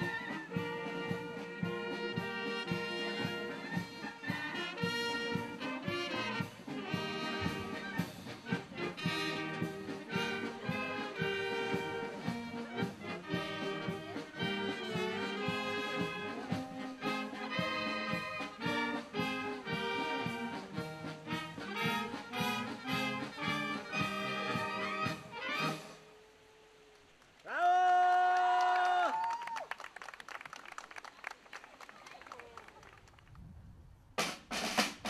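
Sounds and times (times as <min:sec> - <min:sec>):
marching brass band playing: 0:00.0 - 0:26.2, 0:34.2 - 0:35.0.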